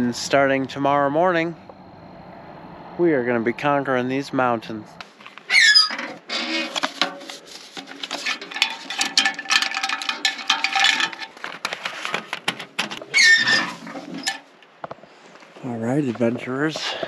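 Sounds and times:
paper rustling: 5.0 - 14.5
short squeak: 5.5 - 6.8, 13.1 - 14.5.

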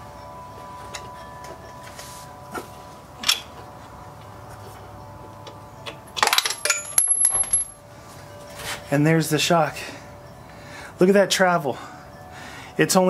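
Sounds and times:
metal parts clinking and rattling: 5.5 - 7.8.

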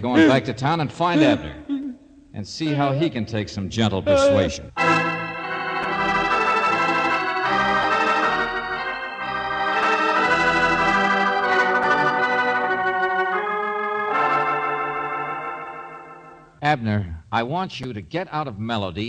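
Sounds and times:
organ playing held chords: 4.2 - 16.6.

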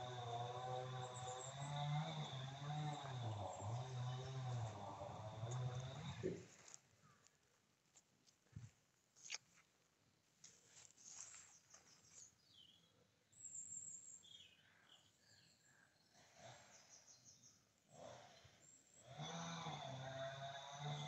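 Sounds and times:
faint bird chirps: 11.2 - 17.7.

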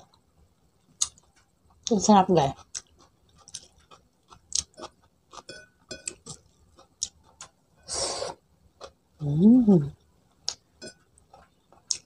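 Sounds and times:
chewing mouth clicks: 11.2 - 12.0.

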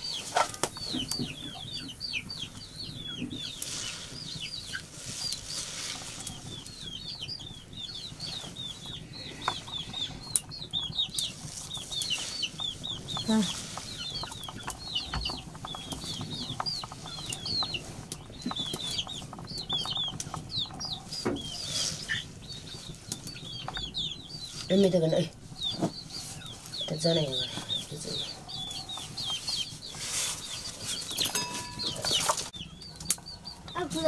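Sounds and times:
chicks peeping: 0.0 - 34.0
leafy greens rustling: 2.4 - 34.0.

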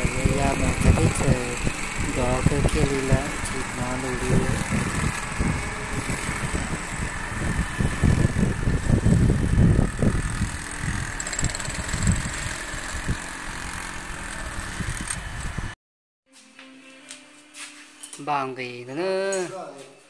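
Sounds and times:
wind buffeting microphone: 0.0 - 15.8.

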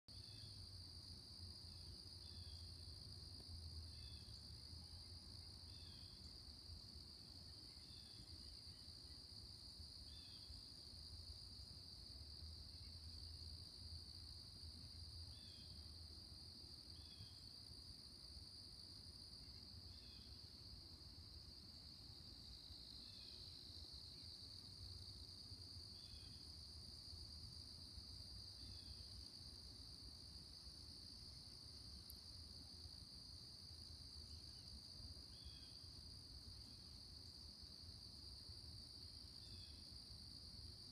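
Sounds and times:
insects trilling: 3.9 - 4.4, 5.1 - 6.4, 9.9 - 10.6, 21.6 - 27.6, 35.3 - 38.0.

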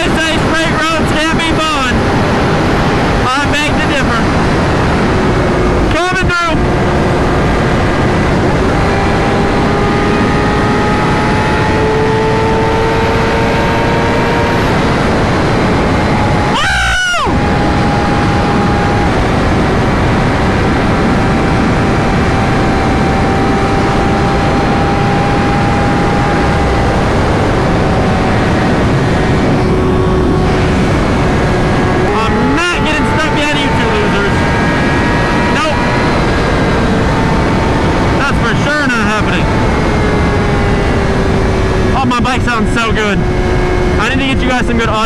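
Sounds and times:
wind rush: 0.0 - 45.0
motorcycle engine running: 17.3 - 45.0.

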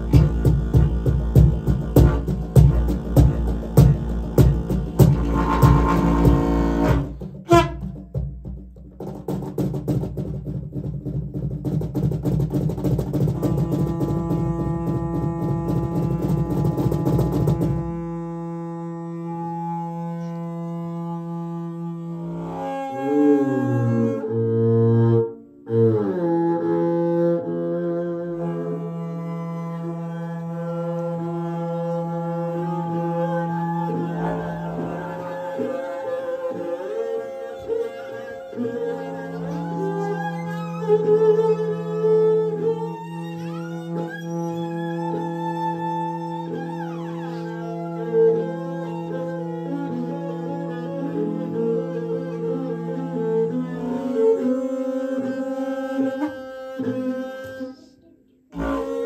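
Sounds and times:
didgeridoo pulsed drone: 0.0 - 7.2, 26.0 - 57.3
bowed string instrument low tone: 0.0 - 8.0, 13.3 - 59.0.

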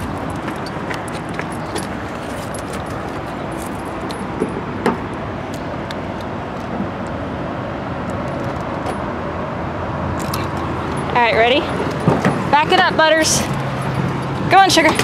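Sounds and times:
dog collar tags clinking: 0.0 - 4.5
freeway traffic noise: 0.0 - 15.0.

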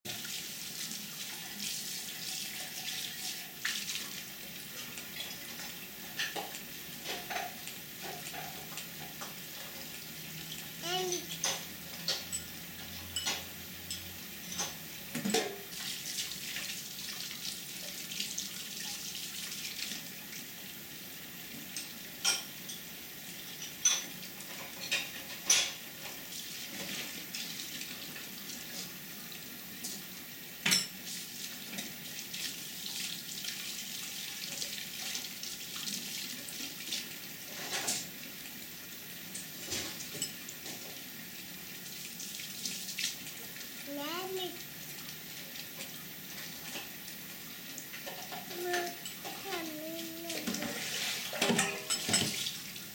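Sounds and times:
running tap hiss: 0.1 - 52.9
tableware clinking: 11.4 - 15.6, 51.4 - 52.4.

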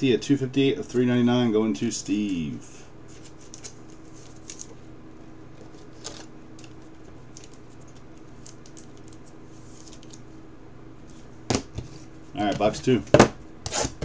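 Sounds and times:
steady low hum: 0.0 - 14.0
trading card scraping and clicking: 13.6 - 14.0.

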